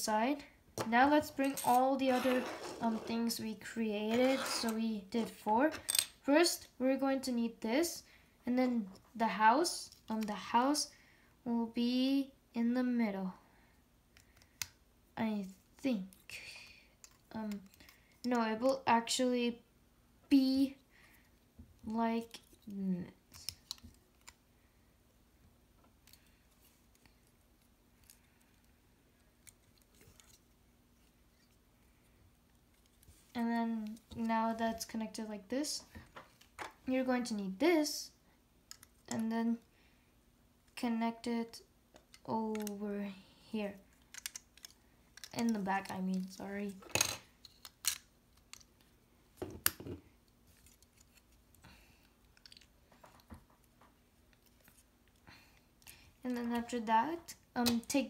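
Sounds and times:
faint steady hum: 0.0 - 58.0
plastic bricks clicking: 44.1 - 45.4.

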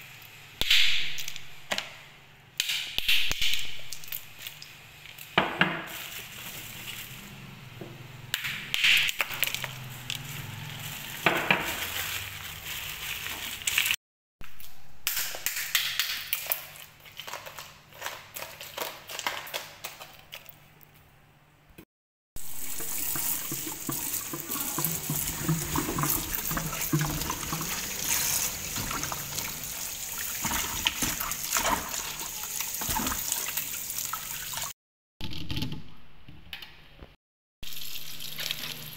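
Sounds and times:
ice cubes clinking in basin: 9.2 - 14.0
water running and splashing: 22.4 - 34.8.

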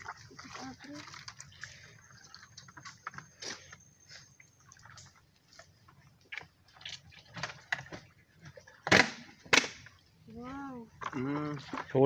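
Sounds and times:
person wading through shallow water: 0.0 - 8.8.

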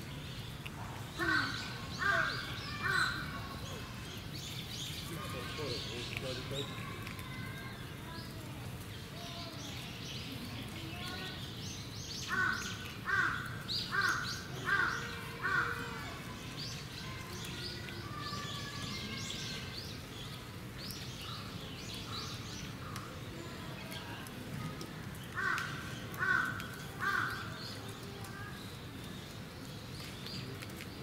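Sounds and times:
small birds chirping: 0.0 - 31.0
crow cawing: 1.2 - 3.2, 12.3 - 15.8, 25.4 - 27.5.

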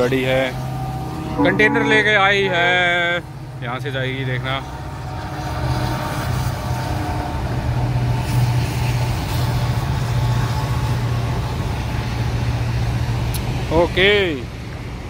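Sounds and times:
locomotive engine drone: 0.0 - 8.1.

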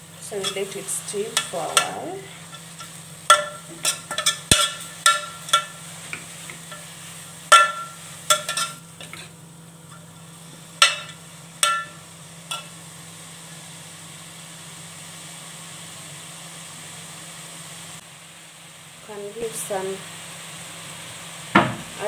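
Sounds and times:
spatula clinking against metal pot: 0.4 - 5.8, 7.5 - 9.2, 10.8 - 12.7.

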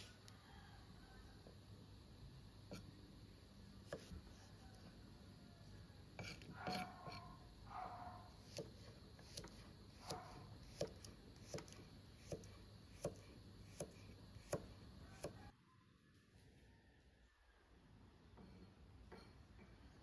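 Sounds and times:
knife chopping on wooden board: 3.8 - 4.2, 6.2 - 7.2, 8.4 - 15.4.

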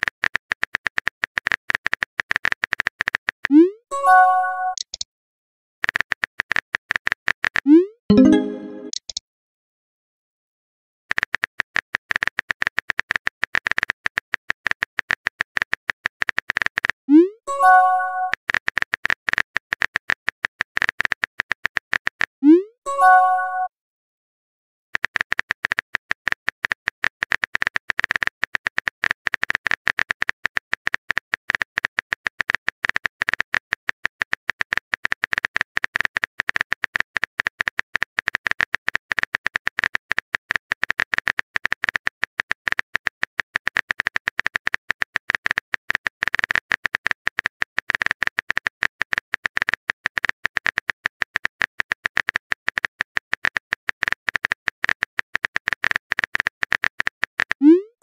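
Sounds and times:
rapid keystroke clicks: 0.0 - 3.7, 4.6 - 5.0, 11.1 - 17.0, 25.0 - 57.7.

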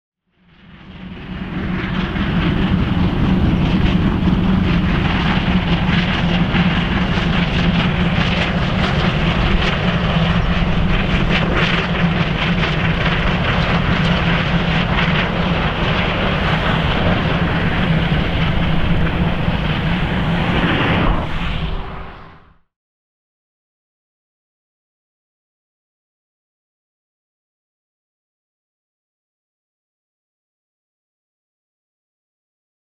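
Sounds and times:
low hum: 0.4 - 22.6
steam locomotive working hard: 0.5 - 22.0.

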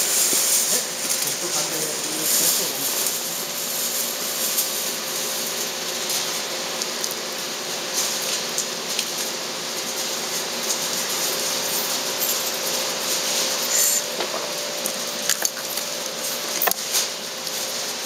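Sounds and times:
steady hiss: 0.0 - 5.2.

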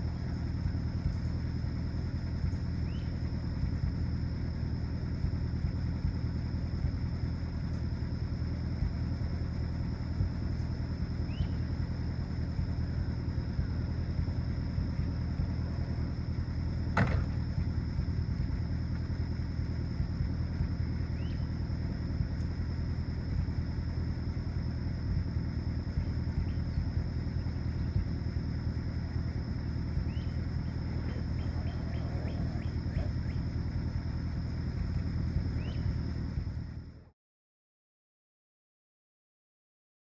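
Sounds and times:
car engine idling: 0.0 - 37.1
insect drone: 0.0 - 37.1
bird chirps: 2.4 - 3.3, 11.2 - 11.7, 21.1 - 21.6, 26.0 - 28.2, 30.0 - 33.5, 35.5 - 36.0.

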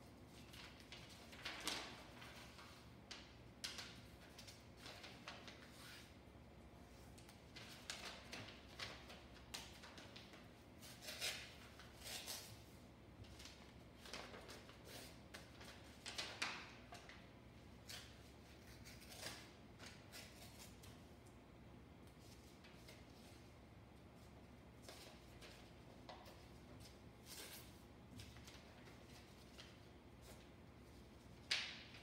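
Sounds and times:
paper rustling and crinkling: 0.2 - 6.1, 7.0 - 21.0, 24.2 - 32.0.

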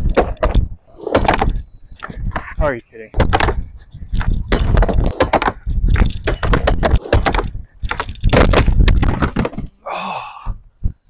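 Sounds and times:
skateboard deck clacking on wood: 3.2 - 3.6, 4.2 - 9.7
skateboard wheels rumbling on wood: 4.2 - 9.6.

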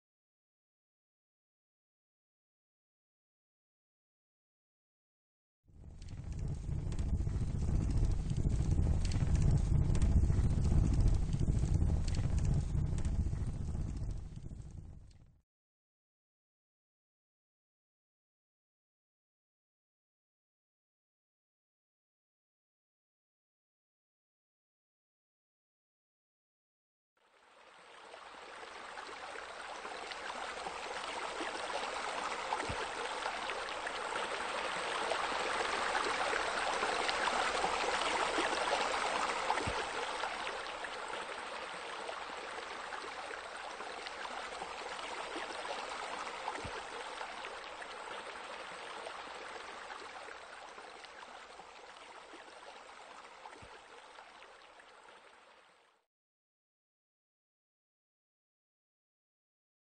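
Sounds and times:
water splashing into pool: 27.3 - 55.8.

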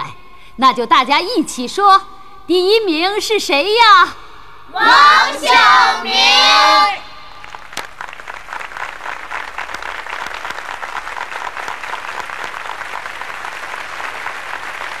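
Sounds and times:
children applauding: 7.4 - 15.0.

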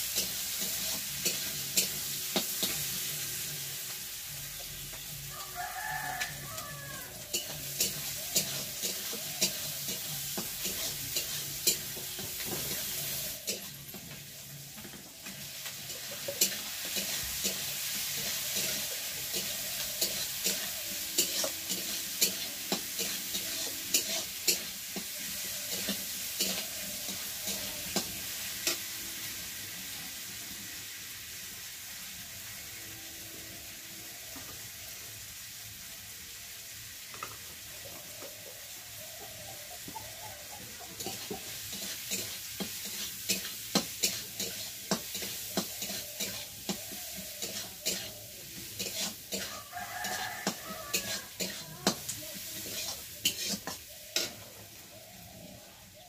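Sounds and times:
spatula scraping a pan: 0.0 - 4.4, 7.0 - 29.0, 40.9 - 55.5
vegetables sizzling in oil: 0.0 - 56.0.

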